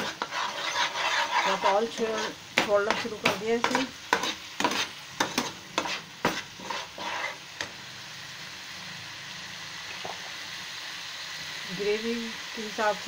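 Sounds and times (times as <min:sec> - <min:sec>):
metal spoon scraping a pan: 0:00.0 - 0:07.8
gravy sizzling in a frying pan: 0:00.0 - 0:13.0.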